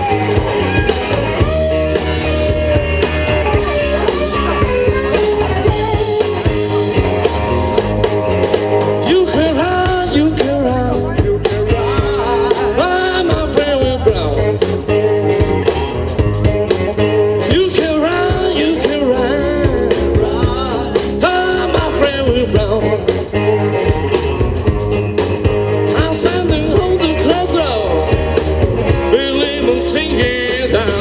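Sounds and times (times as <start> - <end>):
guitar: 0.0 - 31.0
rock band playing live: 0.0 - 31.0
person singing: 8.8 - 15.9, 17.4 - 24.0, 25.9 - 28.2, 28.9 - 31.0.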